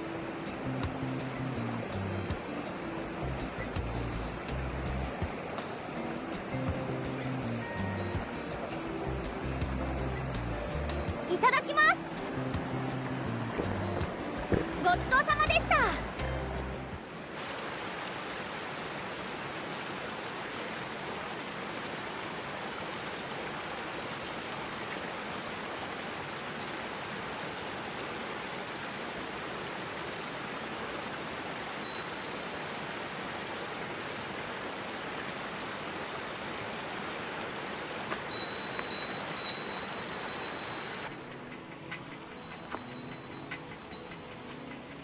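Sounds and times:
stream water rushing: 0.0 - 45.0
high ringing tones: 31.8 - 32.6, 38.3 - 41.5, 42.3 - 44.7.

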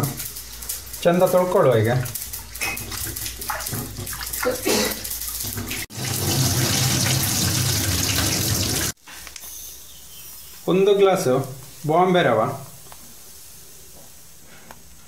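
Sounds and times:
water pouring into sink: 0.0 - 9.0.

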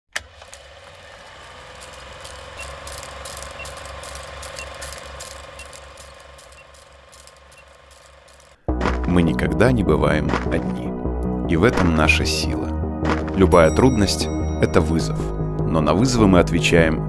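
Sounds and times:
film projector clatter: 0.1 - 8.6.

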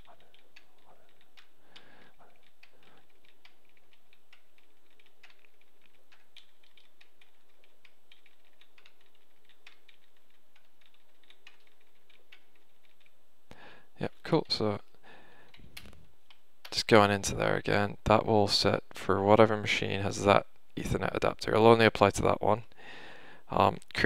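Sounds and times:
keyboard keys clicking: 0.0 - 13.2.

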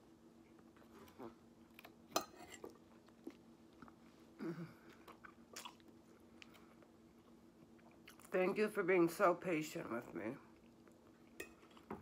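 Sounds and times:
chewing salad: 0.4 - 8.4, 10.4 - 12.0.

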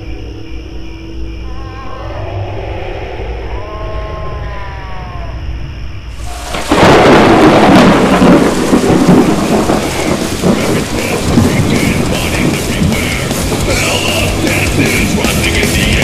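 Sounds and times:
heavy rain falling: 6.2 - 16.0
thunderclap: 6.2 - 16.0.

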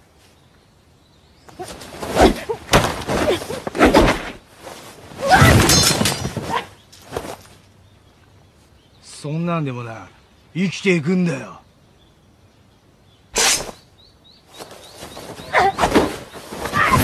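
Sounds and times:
crashing and shattering: 5.2 - 6.5.

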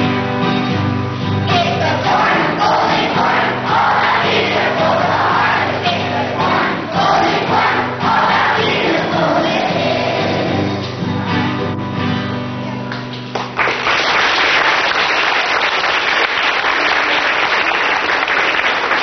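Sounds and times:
acoustic guitar chord: 0.0 - 13.0
audience applause: 12.9 - 19.0.

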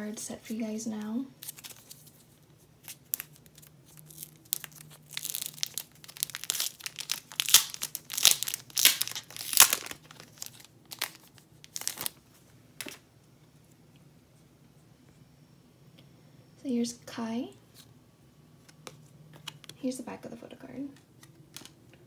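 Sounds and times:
plastic wrapping crinkling and tearing: 1.4 - 12.2, 21.2 - 21.8.

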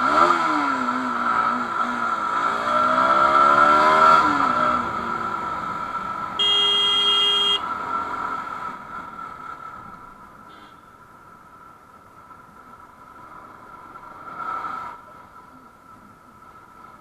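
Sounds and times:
motorcycle engine revving: 0.0 - 8.7
vehicle horn blast: 6.4 - 7.7.

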